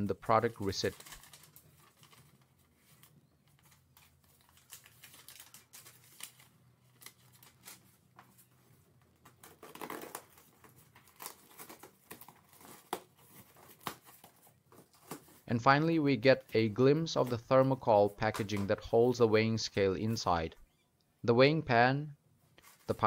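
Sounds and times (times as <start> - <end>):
paper and cardboard crinkling: 0.2 - 15.5, 16.2 - 19.2, 22.6 - 23.0
tape tearing: 0.4 - 8.5, 9.2 - 15.4.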